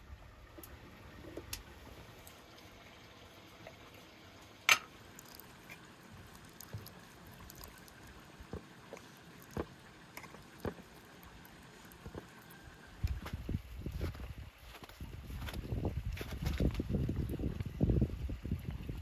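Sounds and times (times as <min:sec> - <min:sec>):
wet plops of jam: 0:05.2 - 0:10.9.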